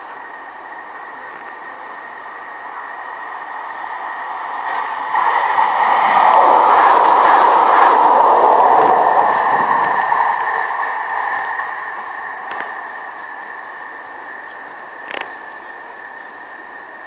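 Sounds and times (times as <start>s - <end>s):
steady high ringing tone: 0.0s - 17.0s
tram passing: 0.0s - 17.0s.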